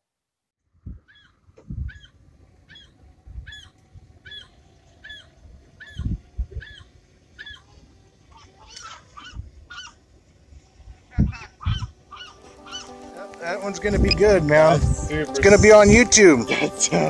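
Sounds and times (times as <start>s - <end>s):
gulls calling: 11.0s - 17.0s.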